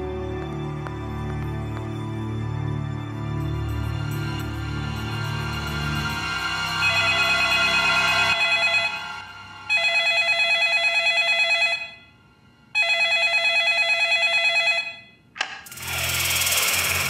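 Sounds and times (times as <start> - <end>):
telephone warbling ring: 6.8 - 9.0, 9.7 - 12.1, 12.8 - 15.2.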